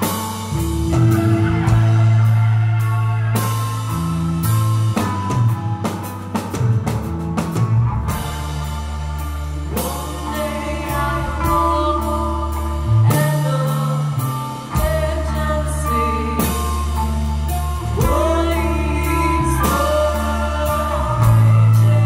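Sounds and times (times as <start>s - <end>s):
rock band playing: 0.0s - 22.0s
woman singing: 9.6s - 22.0s.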